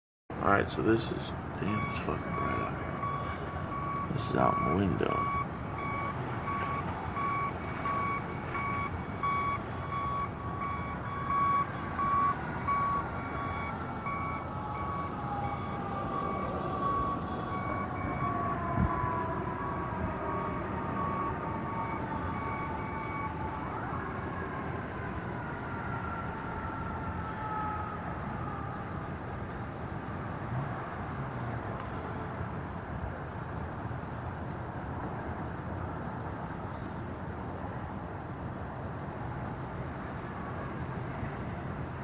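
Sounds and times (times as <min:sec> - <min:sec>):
traffic rumble: 0:00.3 - 0:42.0
vehicle reversing alarm beeping: 0:01.0 - 0:18.4, 0:21.0 - 0:23.4
siren wailing: 0:01.6 - 0:29.2.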